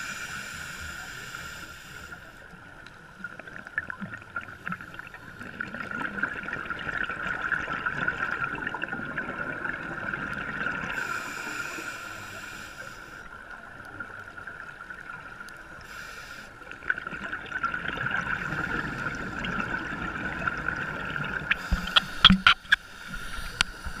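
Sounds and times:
muffled underwater rushing hiss: 0:00.0 - 0:02.8, 0:10.7 - 0:14.2, 0:14.9 - 0:17.0, 0:18.2 - 0:24.0.

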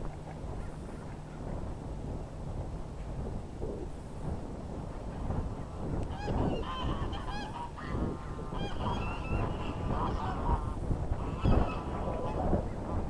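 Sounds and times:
geese honking: 0:05.6 - 0:12.8.

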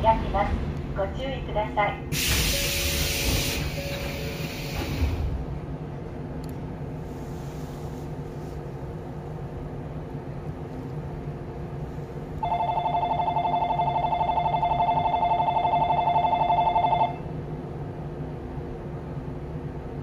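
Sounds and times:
stopped train humming: 0:00.0 - 0:20.0
electric departure bell ringing: 0:12.4 - 0:17.2.

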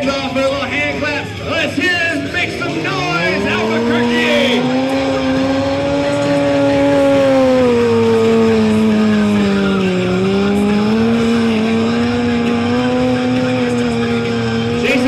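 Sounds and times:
motorcycle engine revving high: 0:00.7 - 0:15.0.

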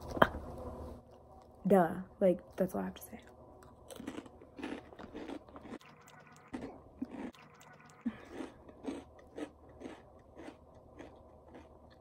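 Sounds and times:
person chewing crunchy snack: 0:03.6 - 0:12.0.

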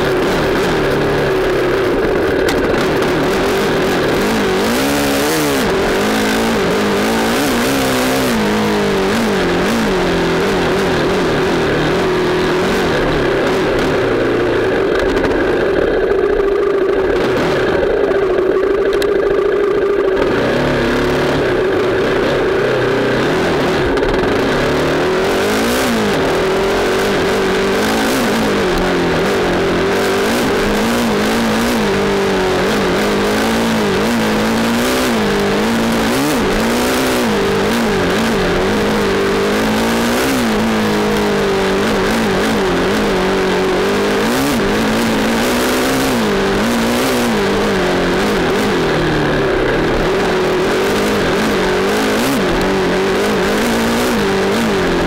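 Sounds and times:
dirt bike engine revving: 0:00.0 - 0:55.0
steady rushing noise: 0:00.0 - 0:55.0.

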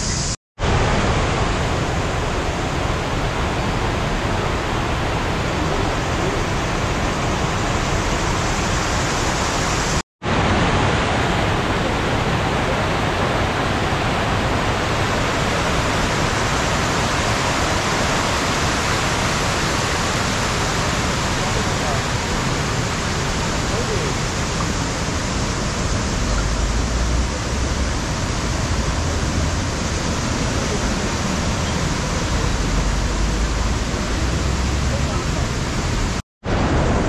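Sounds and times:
waterfall roaring: 0:00.0 - 0:37.0.

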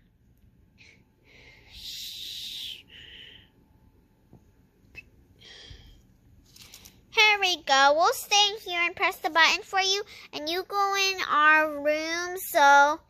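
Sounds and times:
faint breath: 0:00.7 - 0:03.6, 0:05.4 - 0:07.0.

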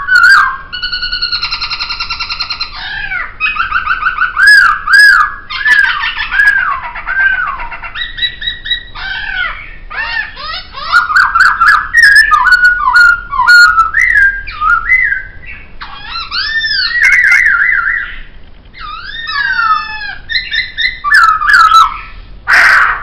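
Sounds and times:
bird singing whistled phrases: 0:00.0 - 0:22.1.

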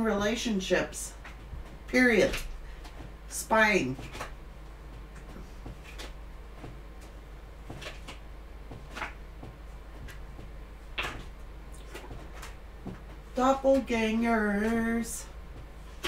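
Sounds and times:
low steady hum: 0:00.0 - 0:16.0
cards being shuffled: 0:05.1 - 0:09.2.

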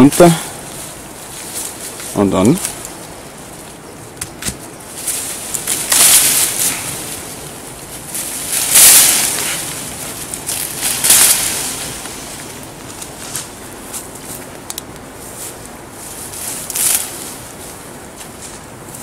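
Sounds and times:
vines rustling and tearing: 0:00.0 - 0:19.0
twigs snapping: 0:01.5 - 0:15.1, 0:16.6 - 0:17.2.

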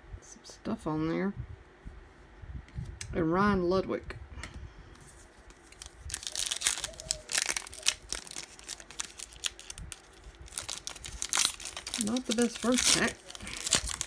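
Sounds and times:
foil wrapper tearing and crinkling: 0:05.5 - 0:14.0.

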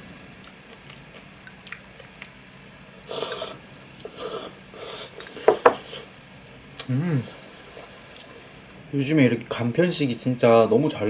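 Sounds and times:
slurping noodles: 0:03.1 - 0:06.1.

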